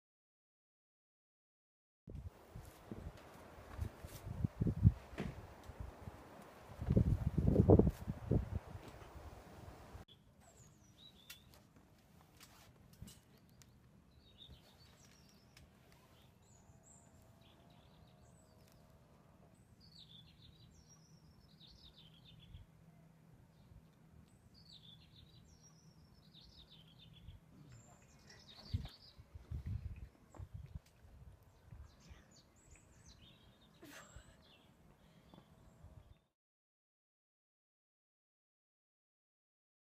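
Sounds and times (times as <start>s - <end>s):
outdoor background noise: 2.1s - 36.3s
soft thumps: 5.1s - 5.4s
small birds chirping: 10.1s - 11.7s, 13.1s - 19.0s, 19.6s - 22.7s, 23.5s - 30.8s, 31.4s - 36.3s.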